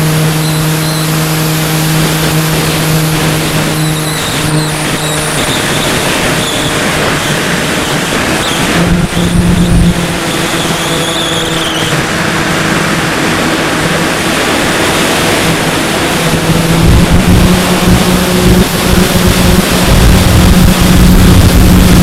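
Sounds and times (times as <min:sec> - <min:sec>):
electric motor and propeller humming: 0:00.0 - 0:22.0
wind rushing over microphone: 0:00.0 - 0:22.0.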